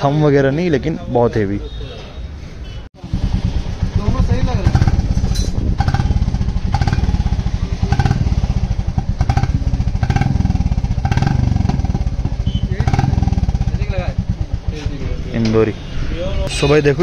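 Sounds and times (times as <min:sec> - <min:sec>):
motorcycle engine idling: 0:03.0 - 0:15.4.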